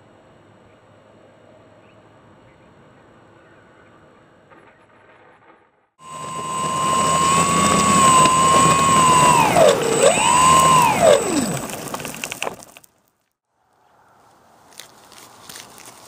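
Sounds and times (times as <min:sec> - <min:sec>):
electric motor and propeller whine: 0:06.0 - 0:12.8.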